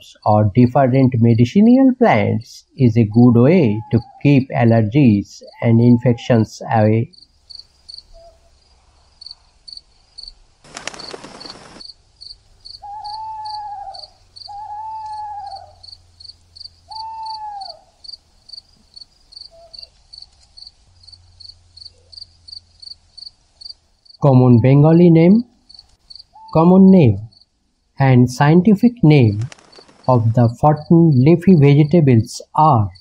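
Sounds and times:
long falling hoots: 3.2 - 4.5, 12.6 - 18.1
cricket chirping: 5.5 - 24.7, 25.3 - 28.0, 29.3 - 33.0.

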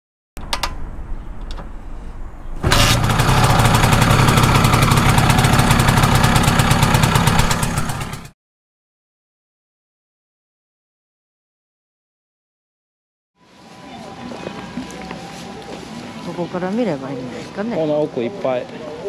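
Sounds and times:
scooter engine running: 2.6 - 8.3.

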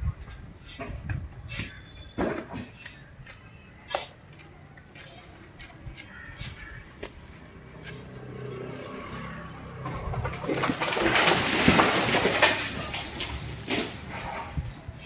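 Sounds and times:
vehicle passing by: 7.3 - 11.4.

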